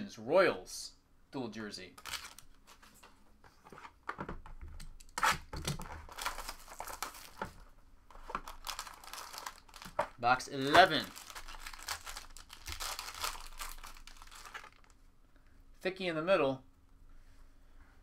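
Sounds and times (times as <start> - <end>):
plastic wrap tearing and crinkling: 2.0 - 2.8, 5.0 - 15.0.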